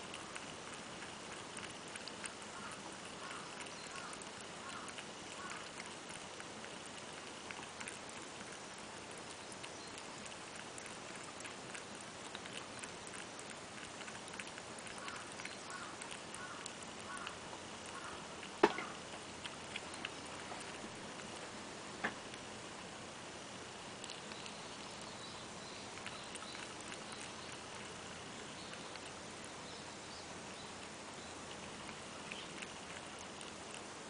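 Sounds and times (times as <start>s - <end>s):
cat lapping water: 0.0s - 34.0s
sharp knock: 18.6s - 18.9s.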